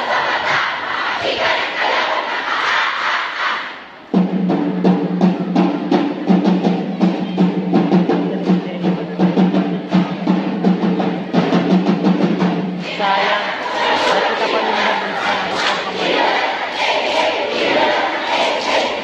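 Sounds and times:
fast rhythmic drumming: 4.1 - 19.0.

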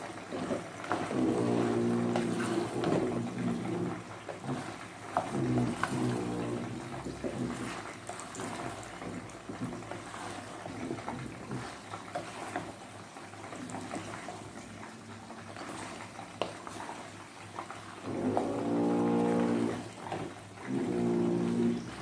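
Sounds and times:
food bubbling and hissing: 0.0 - 22.0
spoon stirring noodles in pot: 0.2 - 12.9.

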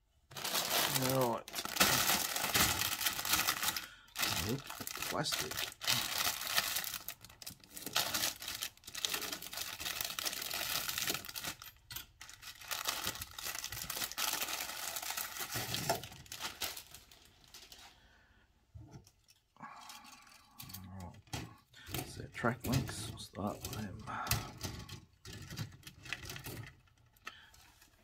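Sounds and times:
plastic bag crinkling and tearing: 0.3 - 17.9.

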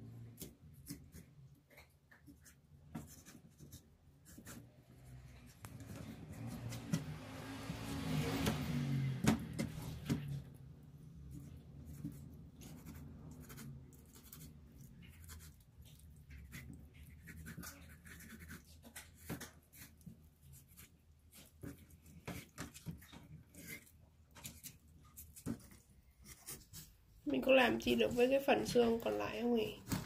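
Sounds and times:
knife scraping fish: 0.4 - 7.2, 9.5 - 27.0.

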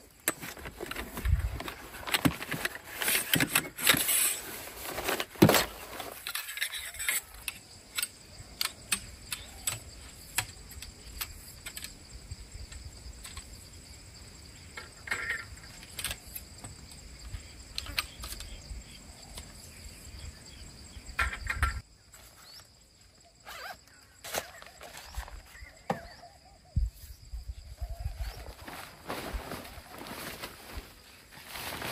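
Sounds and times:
tent poles clicking and clinking: 0.0 - 12.1, 12.7 - 13.7, 14.7 - 17.1, 17.7 - 18.6, 23.4 - 26.1
high insect drone: 0.0 - 31.8
nylon sack rustling: 4.0 - 6.2, 28.1 - 31.9.

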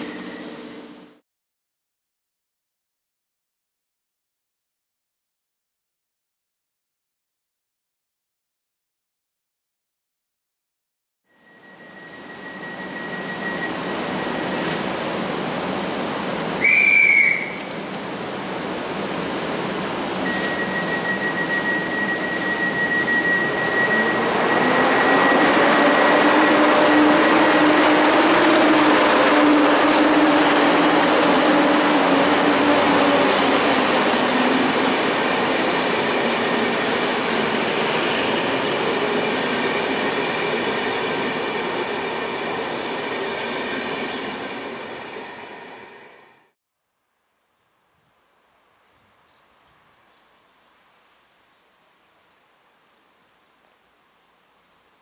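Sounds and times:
electric locomotive whine and hum: 0.0 - 1.2, 11.3 - 46.6
train whistle blast: 16.6 - 17.7, 20.2 - 33.0
train wheels rolling: 19.8 - 46.4.

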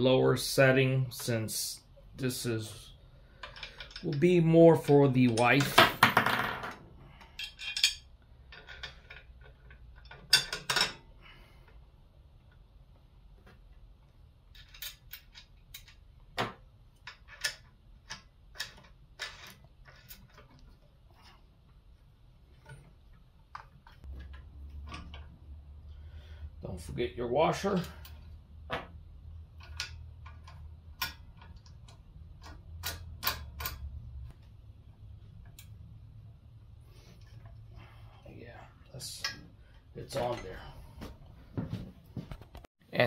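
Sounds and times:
metal parts clicking and clinking: 3.3 - 5.8, 6.7 - 11.1, 14.4 - 16.1, 17.0 - 21.4, 23.5 - 25.4, 29.5 - 34.1.

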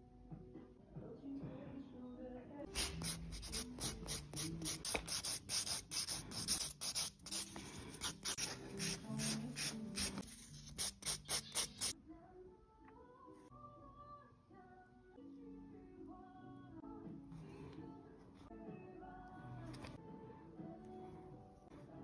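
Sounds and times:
nail file rasping on fingernail: 2.7 - 11.9.

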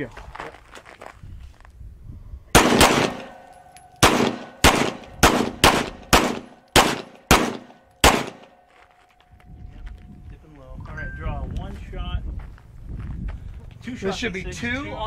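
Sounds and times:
pistol shots: 2.6 - 8.6.

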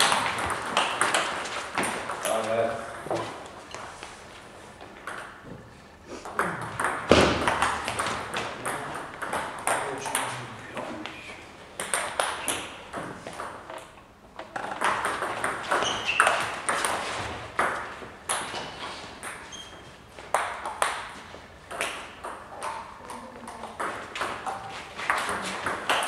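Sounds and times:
distant table tennis clicks: 6.2 - 10.4, 11.8 - 26.0.

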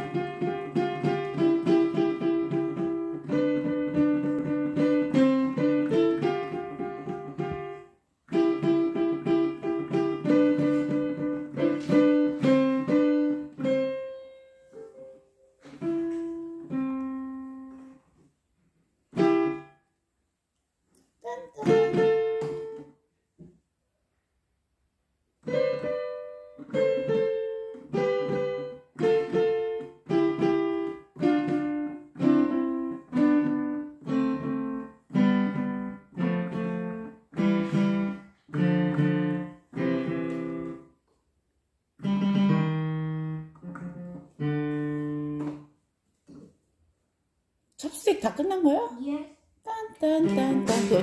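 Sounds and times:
digital piano chords: 0.0 - 18.0, 25.4 - 40.9, 42.0 - 45.7, 50.0 - 51.0.

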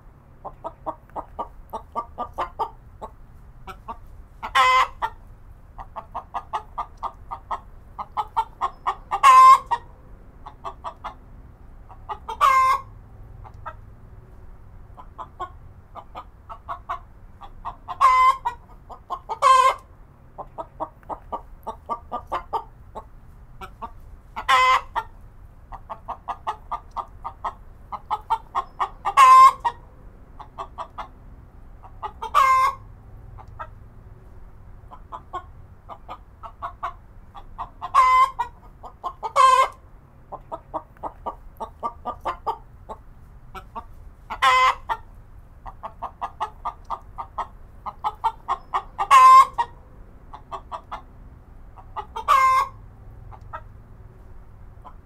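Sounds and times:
chicken clucking: 0.4 - 11.2, 11.8 - 13.9, 15.0 - 31.2, 31.8 - 33.8, 34.8 - 51.2, 51.8 - 55.0
chicken squawks: 3.7 - 5.2, 5.9 - 11.2, 11.9 - 13.8, 15.0 - 19.8, 23.6 - 25.1, 25.8 - 29.8, 31.8 - 32.8, 35.1 - 43.0, 43.6 - 45.0, 45.7 - 51.0, 51.8 - 53.7.

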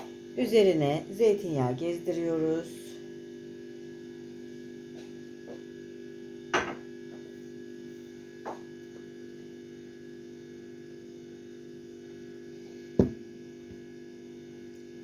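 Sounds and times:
low electrical hum: 0.0 - 15.0
light knocks on a table: 6.5 - 6.8, 8.4 - 8.7, 13.0 - 13.2.

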